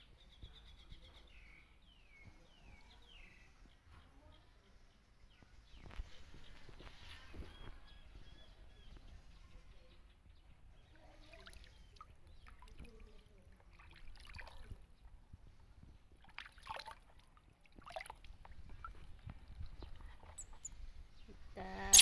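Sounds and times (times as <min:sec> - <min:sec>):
water splashing in a plastic basin: 0:11.3 - 0:14.9, 0:16.2 - 0:19.6.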